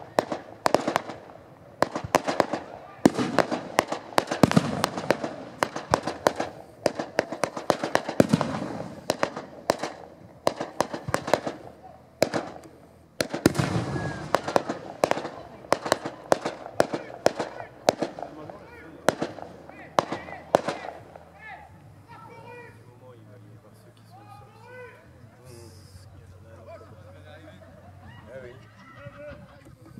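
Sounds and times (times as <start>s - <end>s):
heavy firework booms: 0.0s - 21.2s
fireworks bangs and crackles: 0.0s - 21.5s.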